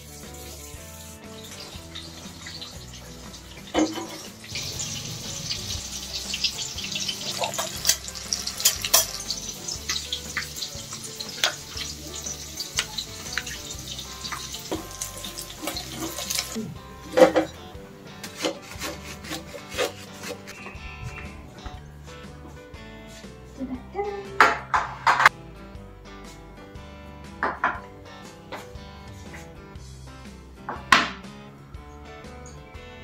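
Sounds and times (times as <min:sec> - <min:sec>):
food sizzling in hot oil: 0:00.0 - 0:20.6.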